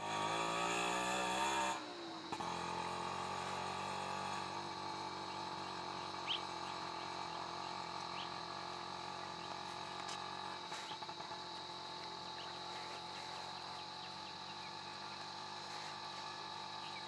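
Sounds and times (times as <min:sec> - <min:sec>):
constant hum: 0:00.0 - 0:17.0
rising bird chirp: 0:05.2 - 0:09.6.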